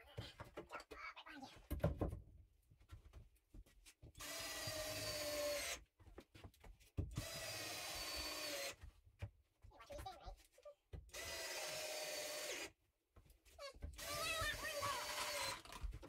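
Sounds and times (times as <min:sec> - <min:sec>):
power drill driving screws into wood: 0:04.2 - 0:05.8, 0:07.1 - 0:08.8, 0:11.1 - 0:12.7, 0:14.0 - 0:15.8.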